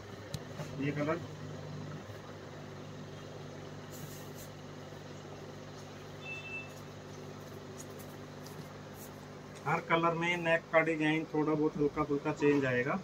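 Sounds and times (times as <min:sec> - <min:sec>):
low mechanical hum: 0:00.0 - 0:13.0
short high beep: 0:06.2 - 0:06.8.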